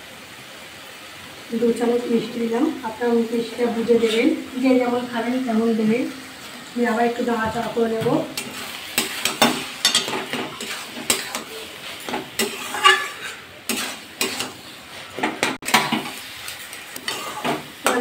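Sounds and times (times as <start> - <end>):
food sizzling: 0.0 - 18.0
metal spatula scraping pan: 7.6 - 18.0.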